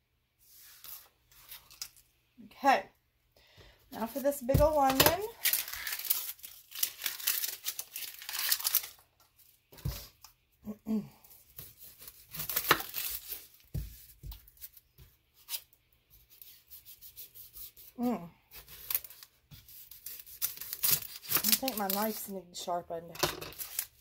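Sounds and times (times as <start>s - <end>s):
onion skin crackling: 4.0s - 9.5s, 11.4s - 13.8s, 17.6s - 22.3s, 23.4s - 24.0s.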